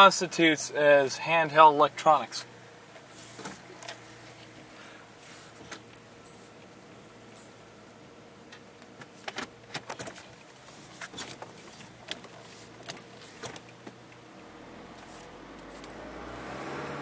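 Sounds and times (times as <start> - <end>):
car engine running: 0.0 - 17.0
road noise: 0.0 - 17.0.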